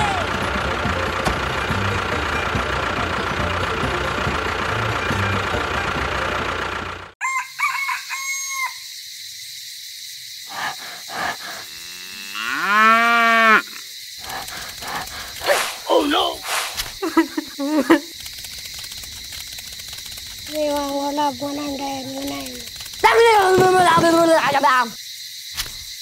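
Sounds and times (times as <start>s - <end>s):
chickens calling: 10.5s - 24.7s
cow mooing: 11.4s - 13.8s.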